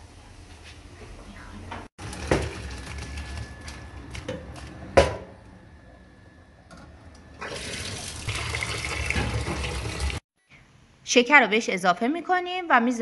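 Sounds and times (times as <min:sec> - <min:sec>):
stream of water pouring: 0:07.4 - 0:10.2
pouring into a metal colander: 0:07.5 - 0:10.2.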